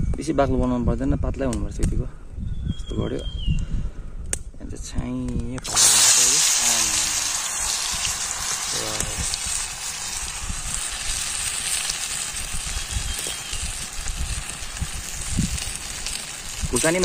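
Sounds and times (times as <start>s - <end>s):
hot oil sizzling: 5.6s - 17.0s.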